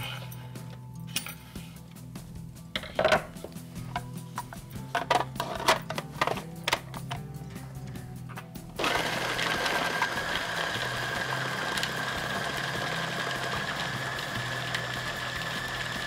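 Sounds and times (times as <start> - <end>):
food processor motor whining: 8.8 - 16.0.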